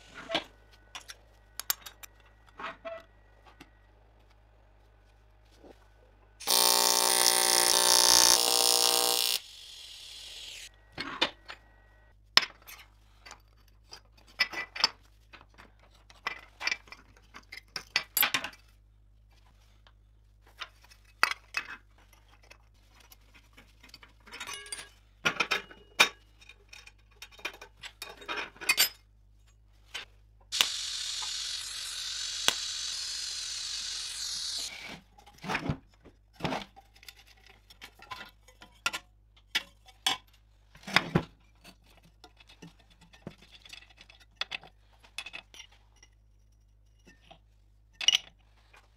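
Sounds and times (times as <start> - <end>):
welding arc buzzing: 6.4 - 10.7, 30.5 - 34.9
loud steady hiss: 30.6 - 34.7.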